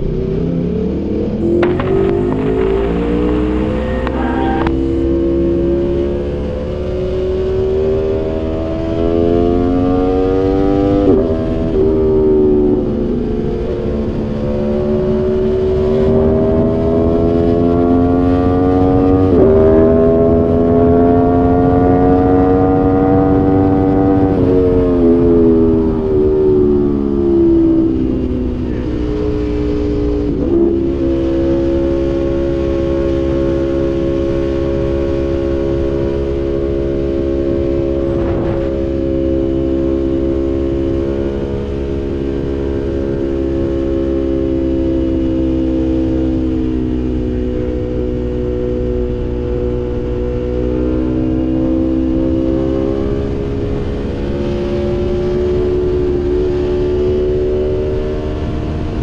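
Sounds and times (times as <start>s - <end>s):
low wind rush: 1.1s - 5.7s, 9.8s - 52.1s
motorcycle engine pulling: 1.4s - 5.0s.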